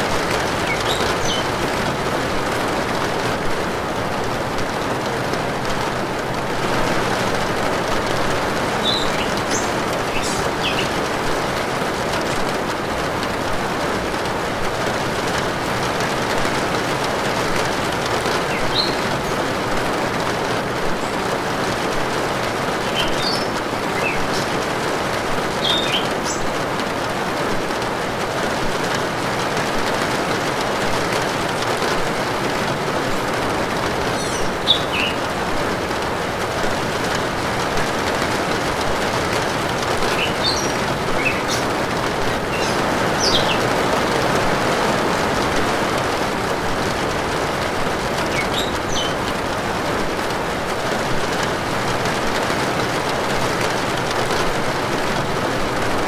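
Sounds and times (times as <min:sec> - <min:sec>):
rain on metal roof: 0:00.0 - 0:56.0
bird chirps: 0:00.6 - 0:01.5, 0:08.8 - 0:11.0, 0:18.5 - 0:19.0, 0:25.6 - 0:26.4, 0:34.1 - 0:35.2, 0:40.1 - 0:41.7, 0:42.5 - 0:43.7, 0:48.3 - 0:49.2.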